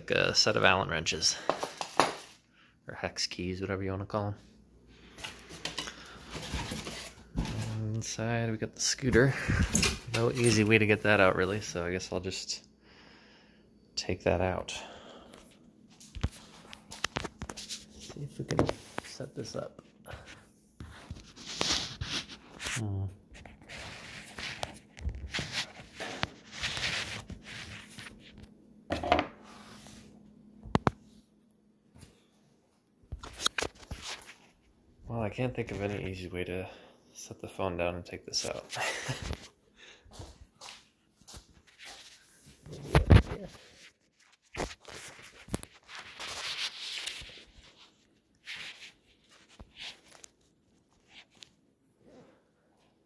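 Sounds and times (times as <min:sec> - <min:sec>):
packaging rustling and scraping: 0:05.1 - 0:07.8, 0:20.9 - 0:22.8, 0:23.4 - 0:28.5, 0:41.5 - 0:51.5
rubbing against microphone: 0:20.3 - 0:28.4, 0:41.3 - 0:51.5
soft scuffs: 0:39.3 - 0:47.7.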